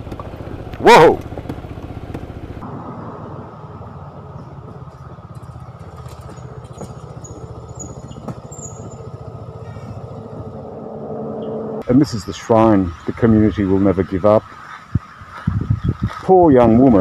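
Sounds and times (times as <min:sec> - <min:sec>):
motorcycle engine beat: 0:00.0 - 0:02.6, 0:03.8 - 0:10.8.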